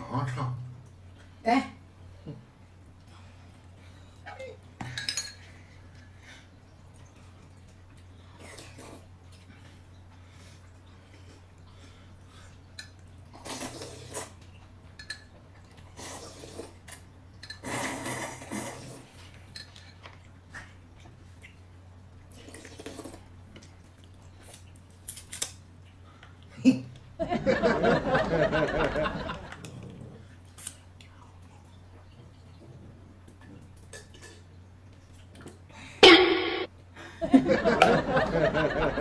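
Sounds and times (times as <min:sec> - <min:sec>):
dishes and cutlery clinking: 0:04.8 - 0:05.5.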